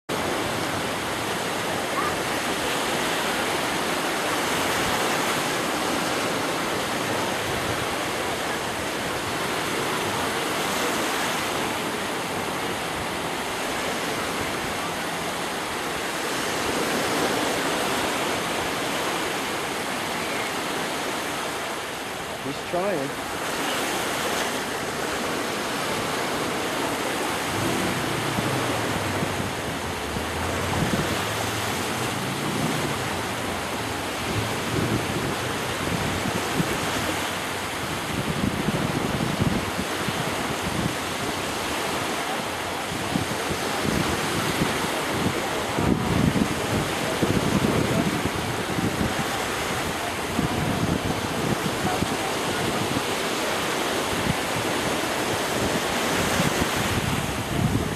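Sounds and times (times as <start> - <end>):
small waves washing on beach: 0.1 - 57.9
wind buffeting microphone: 25.8 - 41.6, 42.8 - 53.2, 54.0 - 57.9.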